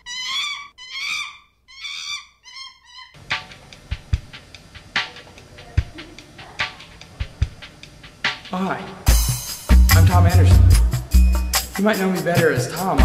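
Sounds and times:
cat meowing: 0.0s - 3.2s
music with drum kit: 3.3s - 13.0s.

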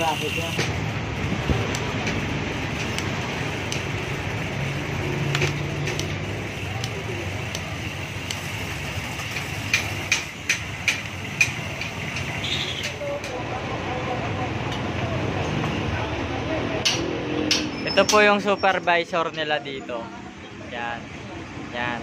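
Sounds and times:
bicycle pedal clicks: 0.0s - 13.6s
traffic: 0.0s - 22.0s.

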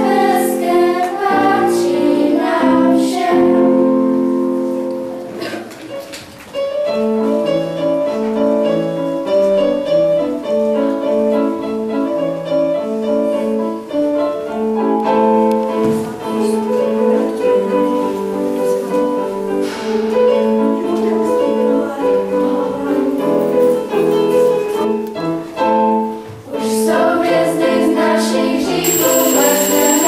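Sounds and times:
girls' choir singing: 0.0s - 4.0s, 26.5s - 30.0s
steady high whine: 28.8s - 30.0s.

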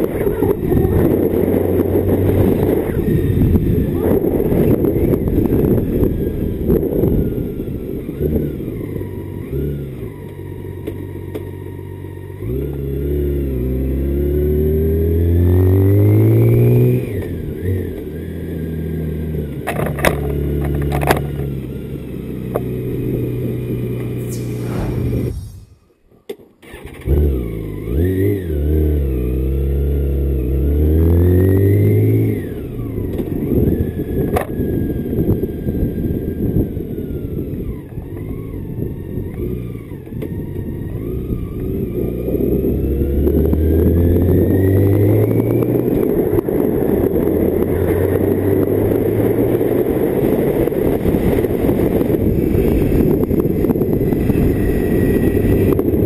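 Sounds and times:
wind rush on microphone: 0.0s - 7.8s, 24.2s - 26.0s, 45.6s - 56.0s
motorcycle engine accelerating: 0.0s - 25.9s, 26.7s - 56.0s.

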